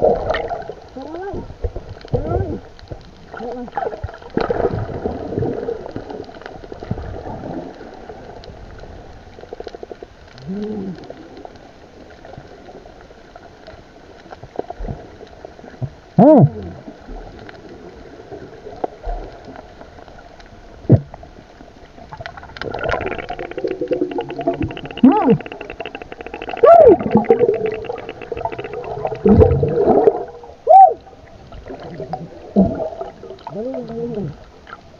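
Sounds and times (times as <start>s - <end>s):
muffled underwater bubbling: 0.0s - 13.0s, 20.8s - 34.9s
small underwater clicks: 0.2s - 30.4s
muffled pitched calls: 23.2s - 29.1s.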